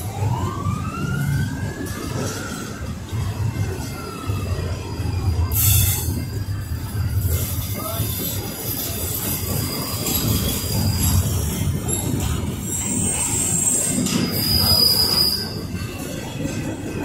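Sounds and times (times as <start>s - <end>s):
train wheels rumbling on rail: 0.0s - 17.0s
high wheel squeal: 4.8s - 16.3s.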